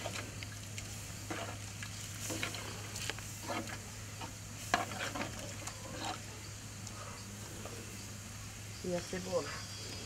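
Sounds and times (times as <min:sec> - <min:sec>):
metal spoon stirring in pot: 0:01.2 - 0:02.8, 0:03.4 - 0:03.8, 0:04.6 - 0:06.3.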